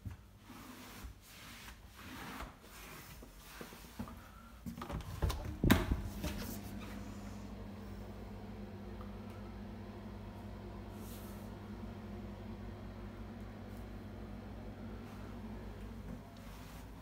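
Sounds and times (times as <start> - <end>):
low steady hum: 4.2 - 17.0.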